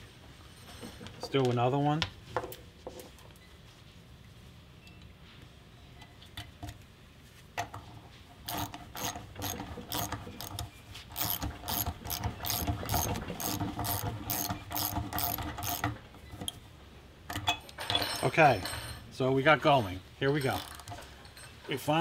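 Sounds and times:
ratchet wrench clicking: 0:08.5 - 0:16.0, 0:20.5 - 0:20.9.

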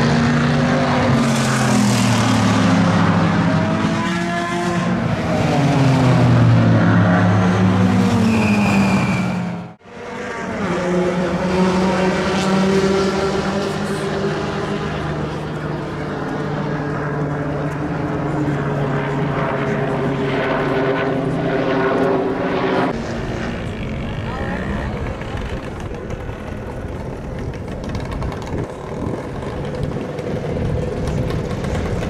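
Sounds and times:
race car passing: 0:00.0 - 0:32.0
steady engine drone: 0:00.0 - 0:32.0.

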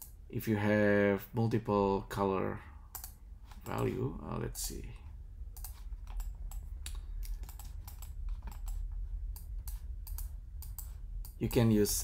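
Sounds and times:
steady low hum: 0:00.0 - 0:12.0
keyboard and mouse clicks: 0:02.9 - 0:03.9, 0:05.6 - 0:11.6.

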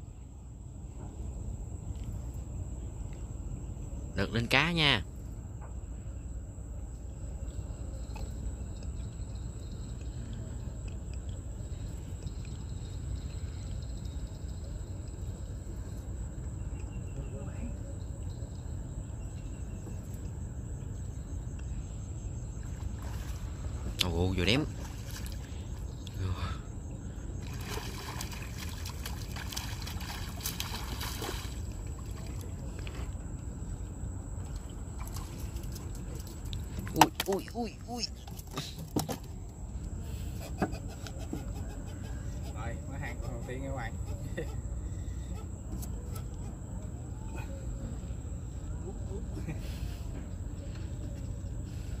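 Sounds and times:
wind and water rumble: 0:00.0 - 0:49.5
high-pitched insect drone: 0:07.6 - 0:10.9, 0:11.5 - 0:22.6
low river rumble: 0:22.2 - 0:38.2
fish splashing in water: 0:27.4 - 0:32.5.

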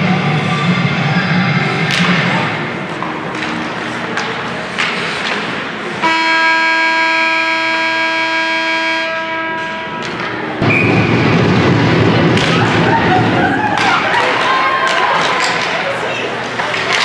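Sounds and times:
scoreboard horn blast: 0:06.0 - 0:10.0
rush of noise: 0:10.5 - 0:14.2.

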